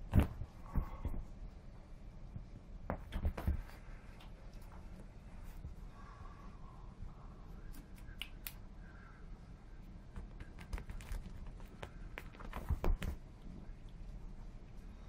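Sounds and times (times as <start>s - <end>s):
claws scratching on sofa: 10.2s - 13.2s.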